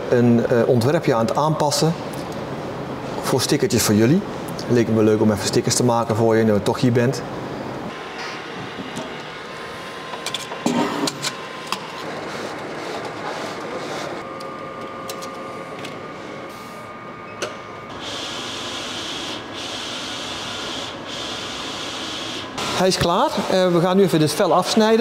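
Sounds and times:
printer carriage running: 0:08.1 - 0:16.4, 0:17.9 - 0:23.9.

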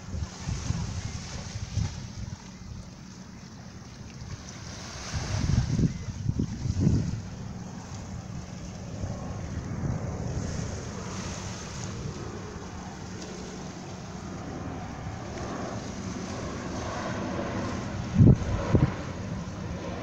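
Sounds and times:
wind on microphone: 0:00.0 - 0:20.0.

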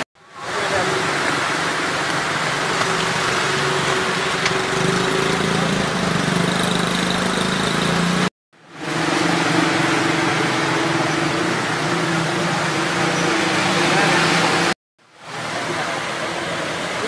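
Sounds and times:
rain and running water: 0:00.0 - 0:17.0
small motorcycle engine idling: 0:02.1 - 0:08.3.

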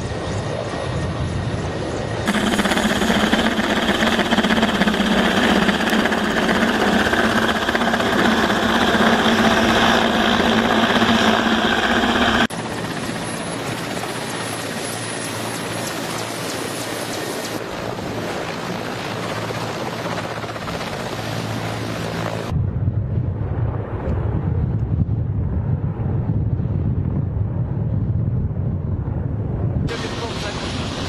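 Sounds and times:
helicopter rotor noise: 0:00.0 - 0:22.5, 0:29.9 - 0:31.0
helicopter turbine whine: 0:00.0 - 0:22.6, 0:29.2 - 0:31.0
low hum: 0:02.3 - 0:13.0.

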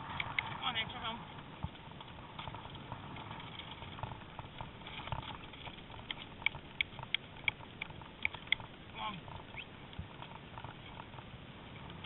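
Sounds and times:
horse-drawn carriage rumbling: 0:00.0 - 0:12.0
wheels and harness knocking: 0:01.4 - 0:12.0.

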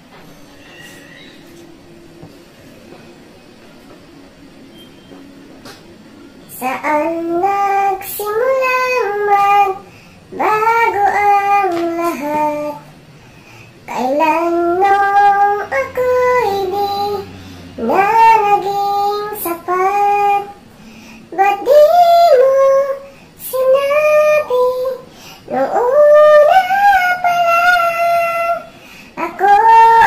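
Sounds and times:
woman singing long notes: 0:21.5 - 0:30.0.

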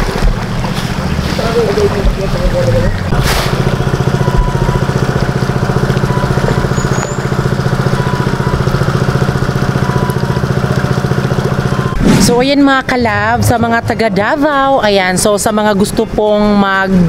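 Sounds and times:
small engine running: 0:02.9 - 0:12.0.

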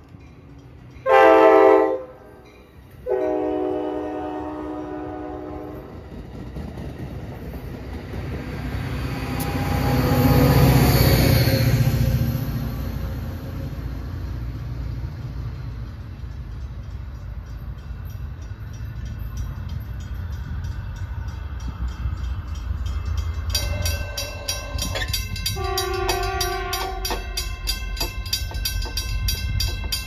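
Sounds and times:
crossing warning bell dinging: 0:00.0 - 0:06.2, 0:14.7 - 0:30.0
train rumbling: 0:00.0 - 0:30.0
chord of steady tones: 0:16.2 - 0:30.0.

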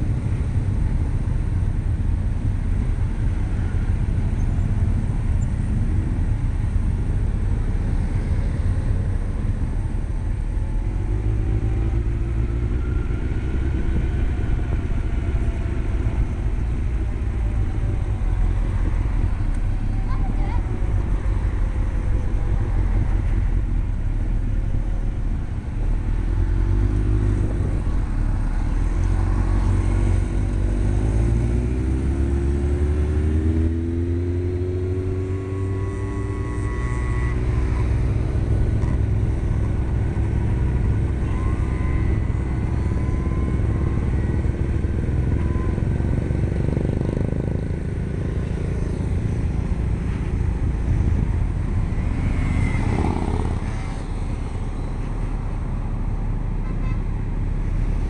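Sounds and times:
motorcycle engine: 0:00.0 - 0:55.6
wind rumble on microphone: 0:00.0 - 0:56.5
other motorcycles riding: 0:00.0 - 0:58.0.

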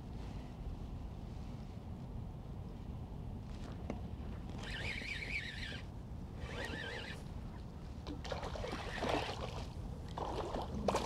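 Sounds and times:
water splashing and trickling: 0:08.0 - 0:11.0.

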